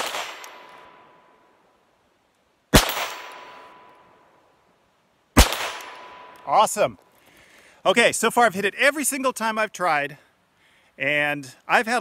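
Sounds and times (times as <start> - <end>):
pistol shots with echo: 2.7 - 3.7, 5.4 - 6.4.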